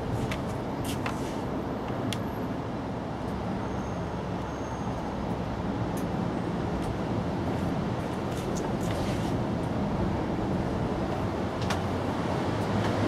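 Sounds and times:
low outdoor background rumble: 4.9s - 13.0s.

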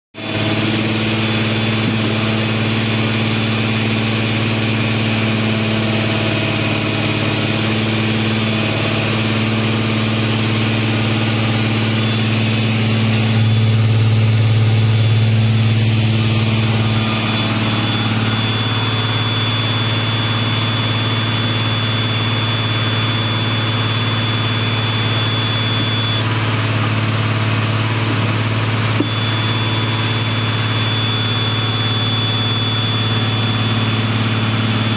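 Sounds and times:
drill rig engine idling: 0.2s - 34.9s
thin high whine: 7.4s - 34.9s.

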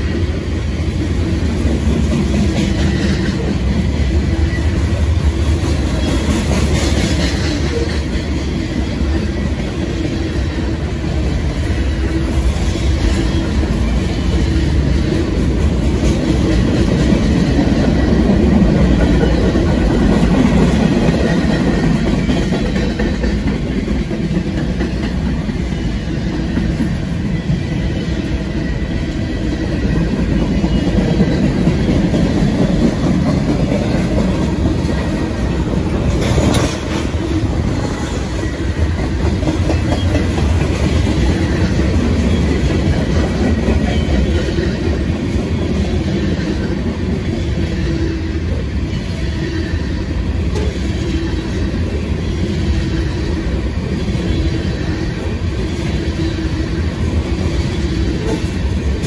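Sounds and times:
train wheels on rails: 0.0s - 59.0s
train car clank: 30.0s - 44.8s.

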